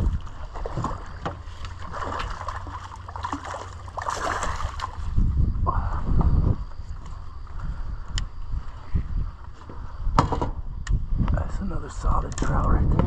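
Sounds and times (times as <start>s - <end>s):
fish splashing in water: 0.0s - 5.0s.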